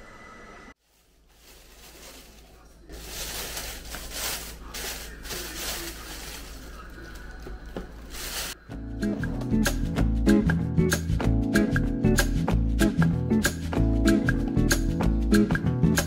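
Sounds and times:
plastic bag rustling: 0:00.8 - 0:08.6.

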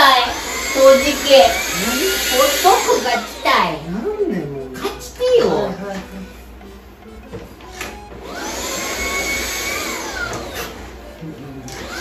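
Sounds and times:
vacuum cleaner motor whine: 0:00.0 - 0:04.4, 0:07.0 - 0:12.0.

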